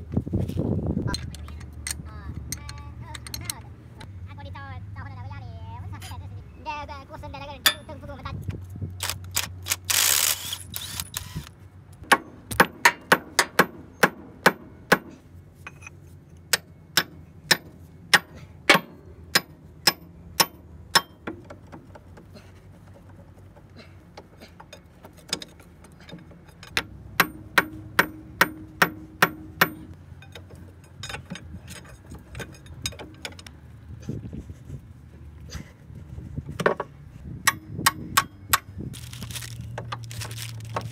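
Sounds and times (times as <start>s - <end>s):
hammer striking steel: 12.0s - 15.1s, 16.5s - 21.2s, 26.7s - 30.4s
impact wrench hammering: 12.0s - 15.1s, 16.5s - 21.4s, 26.7s - 30.0s, 37.5s - 38.7s.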